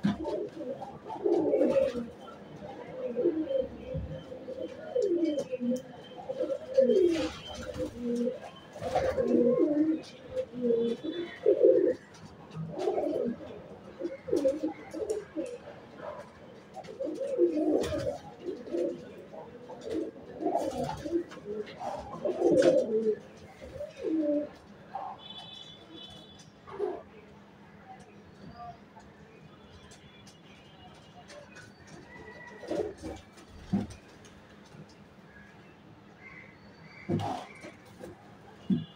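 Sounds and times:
pigeons cooing: 0:00.0 - 0:25.2, 0:31.8 - 0:34.1, 0:37.0 - 0:38.2.

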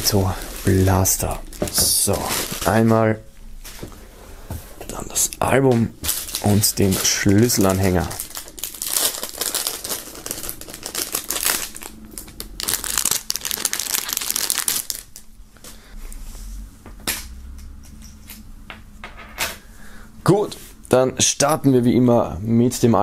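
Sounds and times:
plastic wrapping crinkling: 0:00.0 - 0:03.1, 0:04.9 - 0:15.4.

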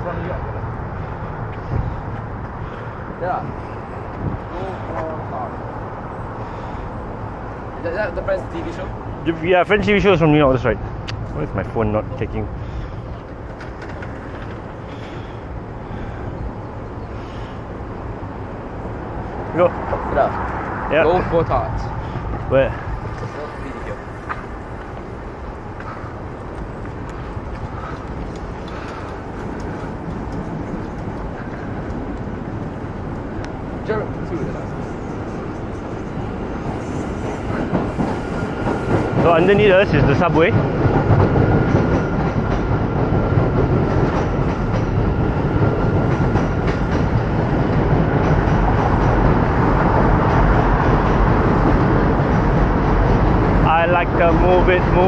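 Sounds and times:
traffic rumbling on steel bridge: 0:00.0 - 0:55.0
wheels clacking over rail joints: 0:12.6 - 0:16.4, 0:20.2 - 0:55.0.

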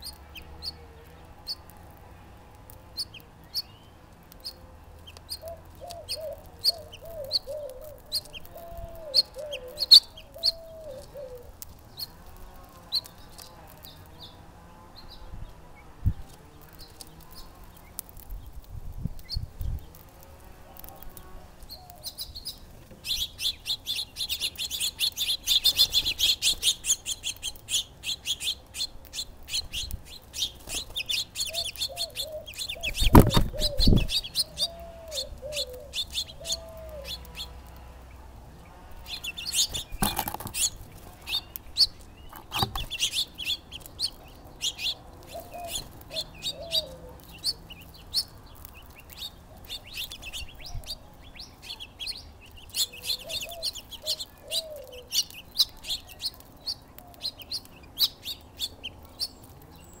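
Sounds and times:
songbirds chirping: 0:00.0 - 1:00.0
knocks or wing flutters: 0:33.0 - 0:34.1
lower bird call notes: 0:40.6 - 0:48.4.

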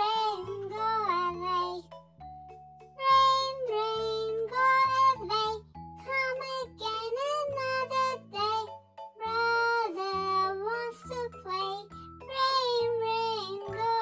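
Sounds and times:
child-like voice singing: 0:03.0 - 0:14.0.

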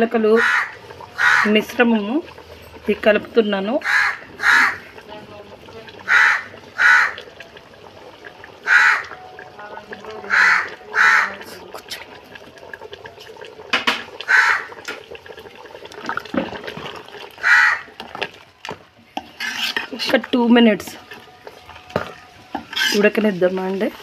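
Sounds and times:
crows cawing: 0:00.4 - 0:01.5, 0:03.8 - 0:04.8, 0:06.1 - 0:07.3, 0:08.6 - 0:09.2, 0:10.3 - 0:11.4, 0:14.2 - 0:14.8, 0:17.4 - 0:17.9.

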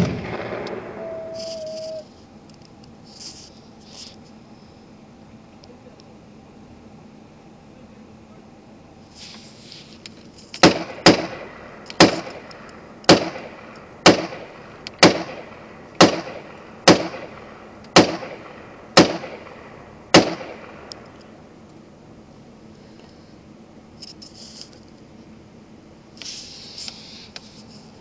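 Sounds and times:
rifle shots with echo: 0:00.0 - 0:01.4, 0:10.6 - 0:21.1.

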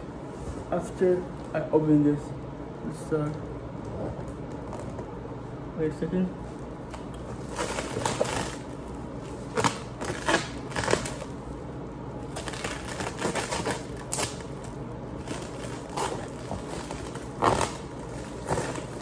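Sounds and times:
plastic wrap crinkling and tearing: 0:06.6 - 0:11.6, 0:12.2 - 0:19.0.

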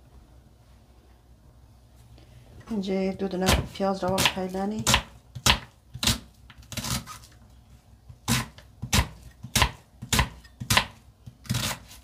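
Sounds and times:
knife chopping on wooden board: 0:03.4 - 0:06.2, 0:08.1 - 0:12.0.

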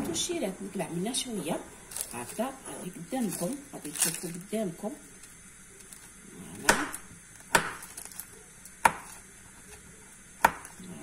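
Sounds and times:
knife chopping on wooden board: 0:06.6 - 0:08.0, 0:08.8 - 0:09.2, 0:10.4 - 0:10.8.

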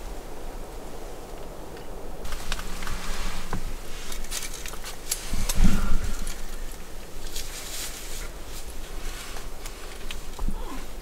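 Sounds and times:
close rustling: 0:00.8 - 0:11.0
light clicks and crackles: 0:01.2 - 0:11.0.

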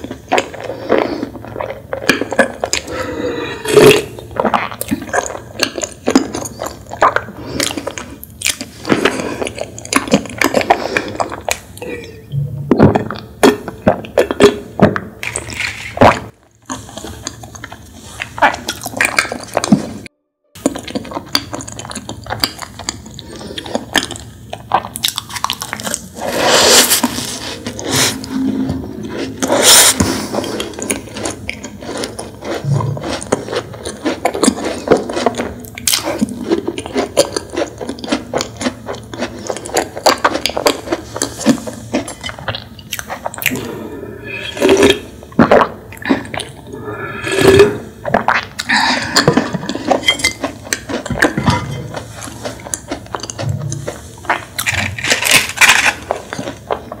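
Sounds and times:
wet sticky chewing: 0:00.0 - 0:11.9, 0:13.0 - 0:28.3, 0:29.0 - 0:57.0
biting: 0:29.1 - 0:57.0.

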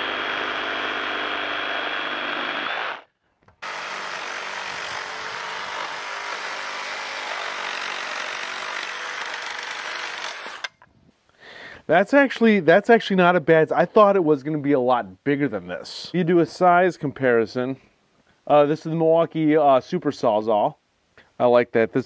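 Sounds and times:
reciprocating saw cutting wood: 0:00.0 - 0:10.8.

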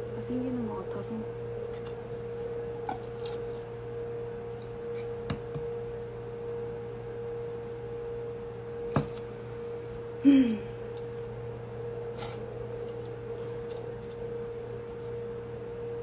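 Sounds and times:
steady electrical hum: 0:00.0 - 0:16.0.

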